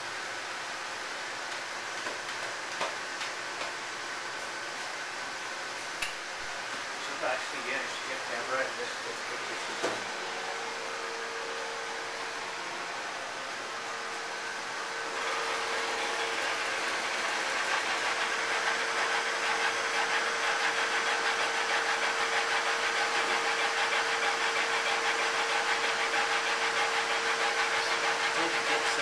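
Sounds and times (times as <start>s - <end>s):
laser engraver humming: 6.4s - 29.0s.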